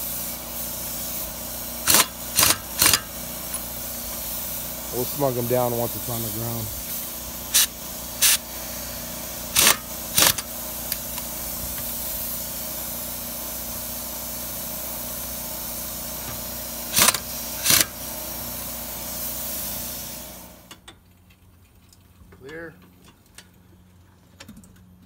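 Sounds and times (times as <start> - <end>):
pneumatic impact wrench bursts: 0.0 - 20.5
air hiss and hum: 0.0 - 20.8.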